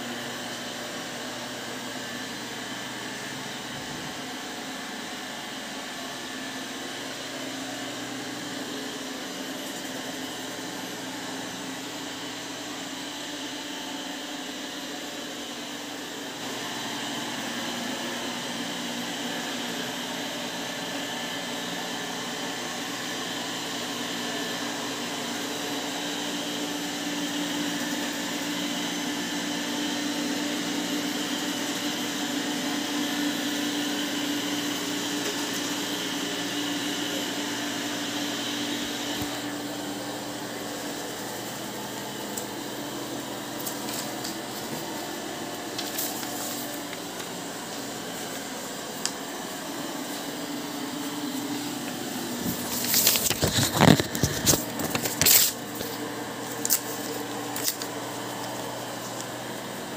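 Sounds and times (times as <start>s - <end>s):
robot vacuum whirring: 0.1s - 59.9s.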